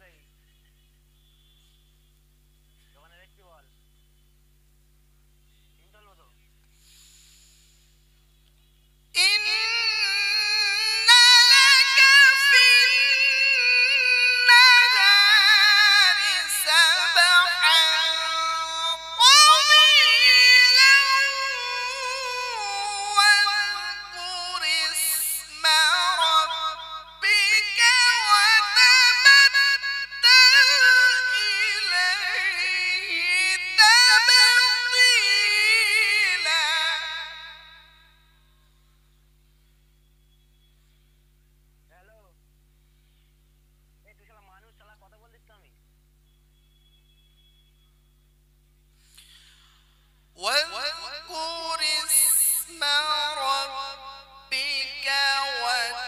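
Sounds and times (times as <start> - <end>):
man reciting melodically: 9.2 - 37.7, 50.4 - 56.0.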